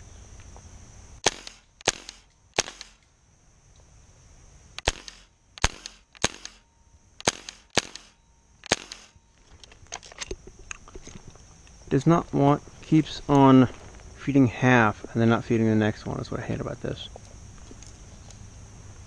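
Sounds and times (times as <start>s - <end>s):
airsoft rifle firing pops: 1.2s - 3.0s, 4.8s - 6.6s, 7.2s - 9.2s.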